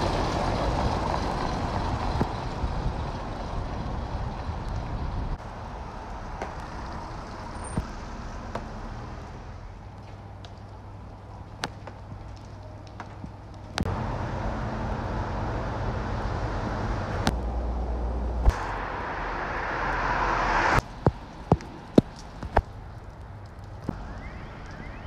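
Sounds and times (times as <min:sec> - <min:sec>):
distant road traffic: 0:00.0 - 0:25.0
low hum: 0:13.8 - 0:22.0.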